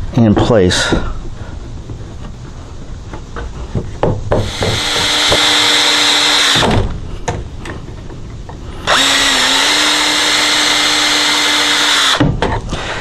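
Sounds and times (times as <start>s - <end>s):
wood and tools knocking: 0.3s - 2.4s, 3.1s - 5.8s
drill clicks: 4.4s - 6.6s, 8.8s - 13.0s
cordless drill whining: 4.4s - 6.7s, 8.8s - 13.0s.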